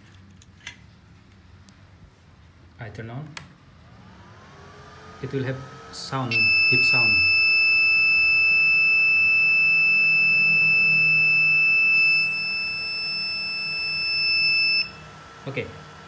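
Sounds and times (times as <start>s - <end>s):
long high-pitched beep: 6.3s - 15.0s.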